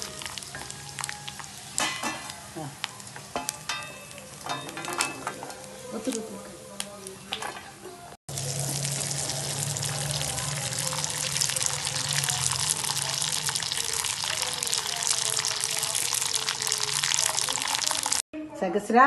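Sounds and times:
food sizzling in hot oil: 0.0s - 4.6s, 8.3s - 18.2s.

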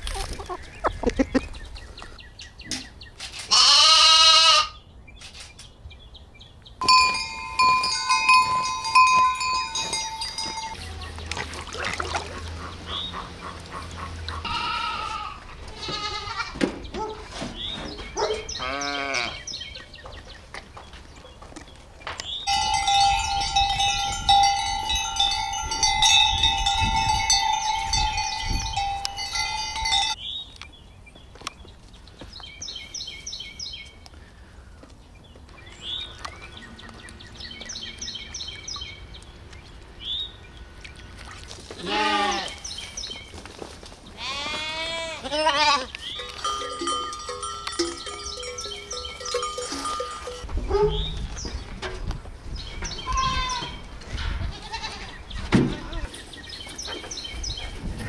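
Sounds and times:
lamb bleating: 3.5s - 4.8s, 14.4s - 16.6s, 18.6s - 19.4s, 41.8s - 42.6s, 44.2s - 45.9s, 53.0s - 53.7s, 54.5s - 56.1s
bell-like ringing: 6.8s - 11.0s, 22.5s - 30.2s, 46.2s - 50.5s.

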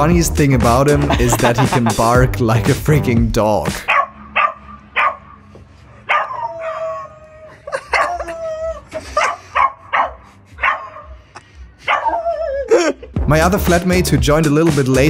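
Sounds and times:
man howling: 6.3s - 8.9s.

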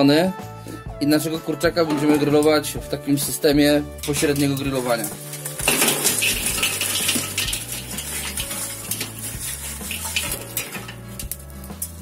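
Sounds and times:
hot coals clinking and crackling: 4.0s - 12.0s.

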